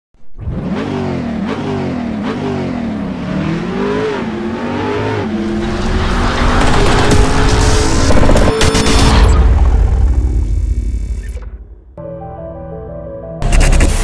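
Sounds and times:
car engine revving: 0:00.4 - 0:11.1.

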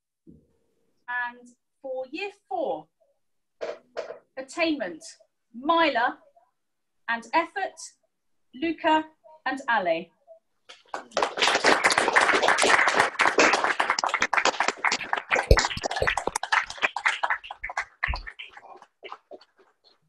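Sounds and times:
people clapping: 0:10.7 - 0:20.0.

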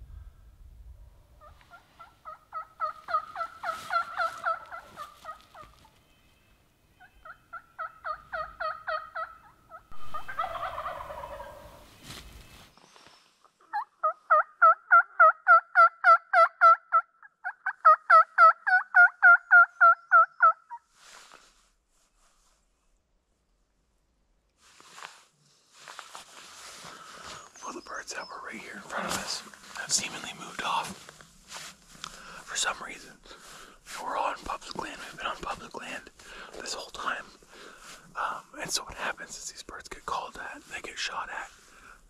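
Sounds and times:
turkey call yelps: 0:01.4 - 0:05.8, 0:07.0 - 0:11.8, 0:13.7 - 0:20.8.

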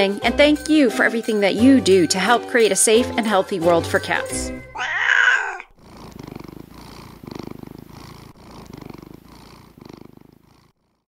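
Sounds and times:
cat purring: 0:04.0 - 0:11.0.

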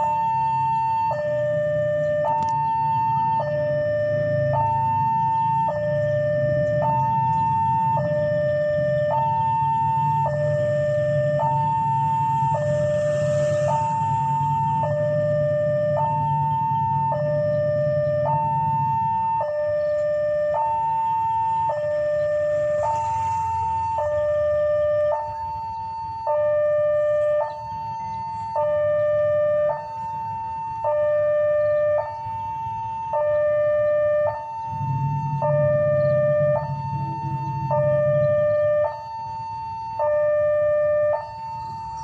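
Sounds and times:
two-tone warning alarm: 0:00.0 - 0:42.0
low rumble: 0:34.6 - 0:38.8.

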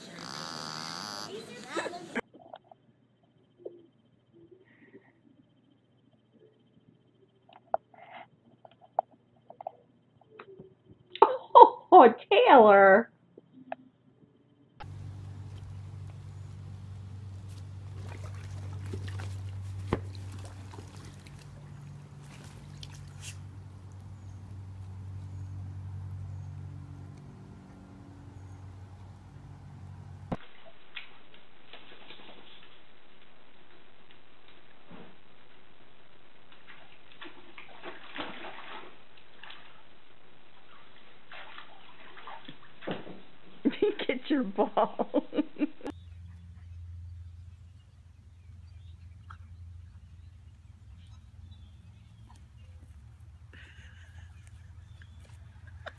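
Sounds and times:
steady low hum: 0:13.1 - 0:55.9
water sloshing and trickling: 0:14.8 - 0:30.4, 0:36.5 - 0:43.7.

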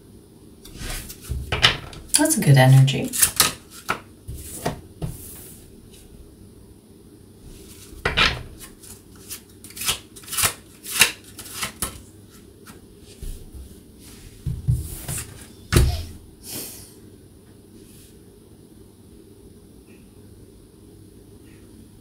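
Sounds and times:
cards slapping on a table: 0:03.2 - 0:05.2.

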